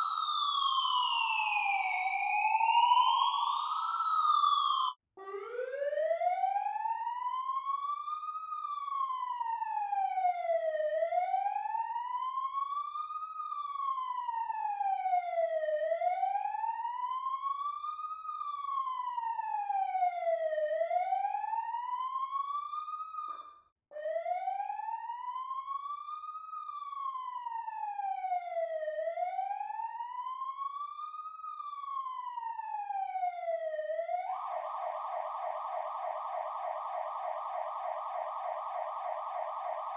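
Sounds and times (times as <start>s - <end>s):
siren wailing: 0.0s - 7.8s, 31.4s - 39.9s.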